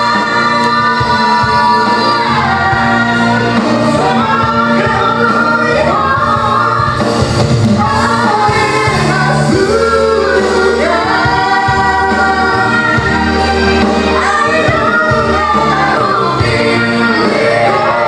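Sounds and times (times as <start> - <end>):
woman singing: 0.0 - 18.0
man singing: 7.8 - 12.9.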